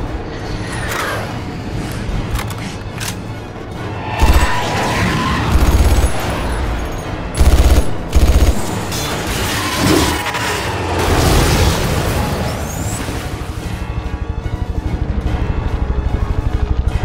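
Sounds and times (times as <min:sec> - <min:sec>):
film score music: 0:00.0 - 0:17.0.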